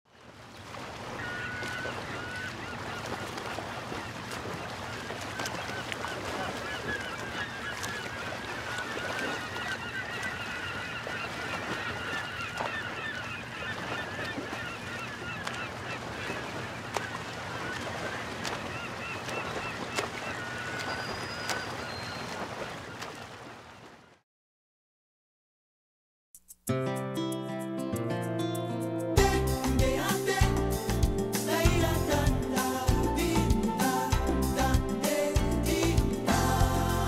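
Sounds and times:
flock of birds calling: 1.1 - 23.3.

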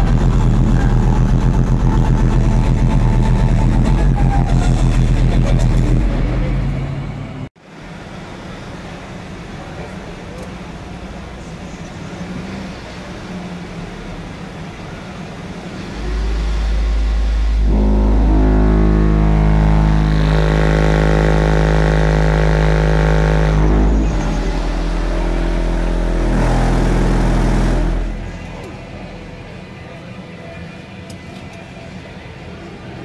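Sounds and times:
subwoofer deep bass tone: 0.0 - 6.8, 16.0 - 29.9
higher steady tones: 15.8 - 31.0.

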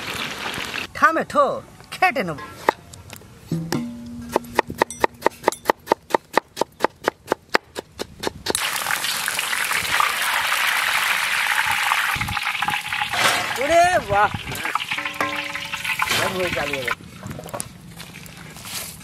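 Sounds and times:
potato deep-frying in oil: 8.6 - 17.0.

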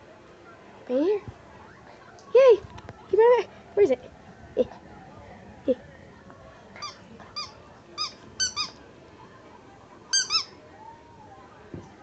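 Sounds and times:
squeaky rubber dog toy: 6.8 - 8.8, 10.1 - 10.6.

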